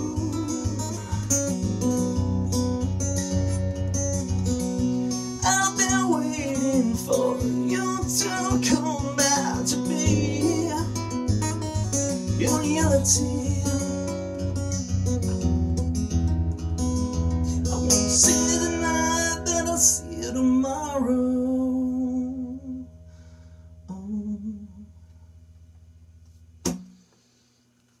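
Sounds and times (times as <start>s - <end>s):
man singing wordless notes: 0.0s - 1.5s, 5.4s - 11.2s, 12.2s - 14.1s, 17.6s - 22.9s
acoustic guitar strummed: 0.0s - 24.4s, 26.1s - 27.4s
sharp knock: 26.6s - 27.0s.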